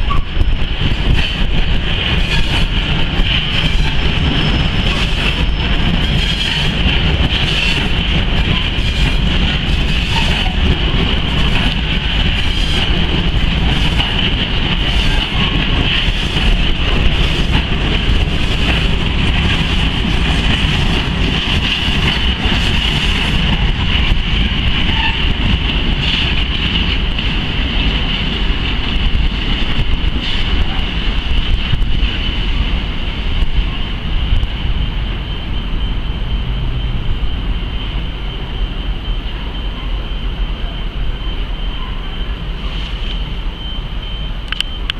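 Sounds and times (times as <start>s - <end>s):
wheels clicking over rail joints: 0.0s - 33.6s
high-pitched wheel squeal: 3.6s - 6.8s, 24.9s - 25.3s.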